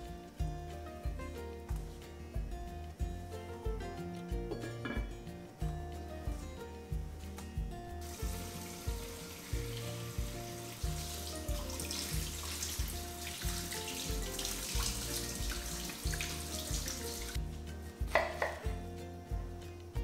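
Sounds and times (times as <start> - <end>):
background music: 0.0 - 20.0
tap water running: 8.0 - 17.4.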